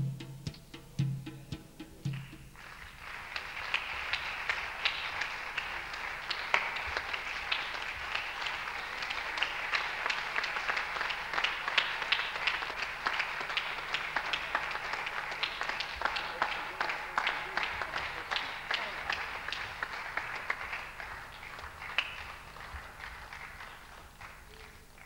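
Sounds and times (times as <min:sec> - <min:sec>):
music: 0:00.0 - 0:05.4
audience applauding: 0:02.0 - 0:25.0.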